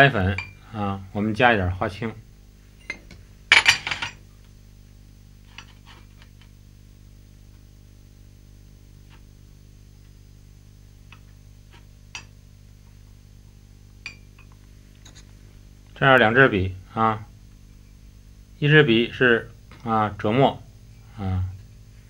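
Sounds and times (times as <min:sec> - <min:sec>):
steady low hum: 0:00.0 - 0:22.0
porcelain dishes clinking: 0:00.3 - 0:00.6, 0:02.8 - 0:04.2, 0:14.0 - 0:14.5.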